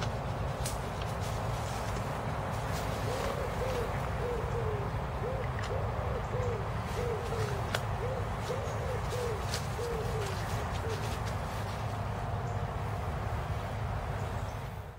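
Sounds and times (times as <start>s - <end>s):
animal hooting calls: 3.0s - 11.1s.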